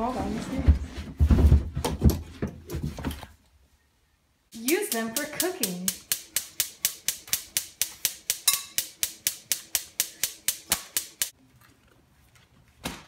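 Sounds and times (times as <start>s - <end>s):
gas stove igniter clicking: 4.6s - 11.3s.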